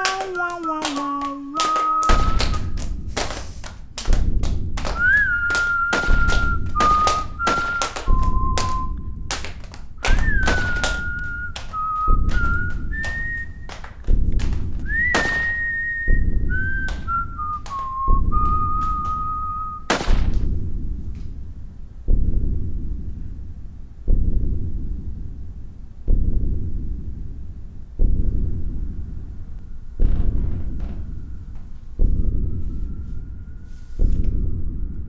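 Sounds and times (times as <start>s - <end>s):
sharp clicking percussion: 0.0s - 21.4s
whistled melody: 1.6s - 2.8s, 4.9s - 9.3s, 10.0s - 13.7s, 14.8s - 19.9s
deep low hits: 2.1s - 35.0s.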